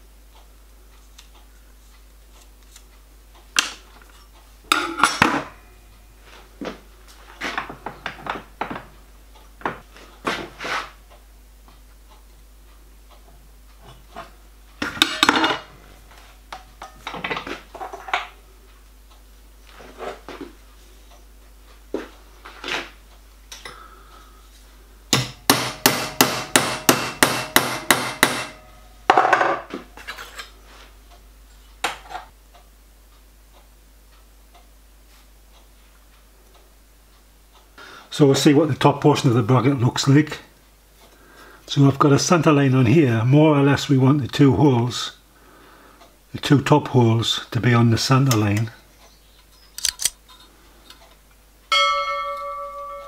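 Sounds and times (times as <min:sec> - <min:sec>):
hammer striking metal bracket: 0:04.7 - 0:05.6, 0:25.1 - 0:29.6.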